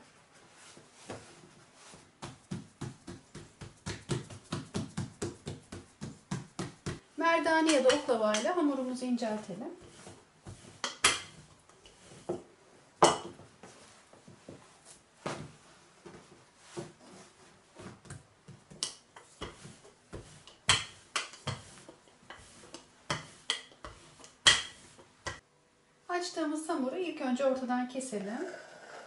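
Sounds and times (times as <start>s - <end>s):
rolling pin working dough: 9.8s - 12.5s, 18.5s - 25.4s.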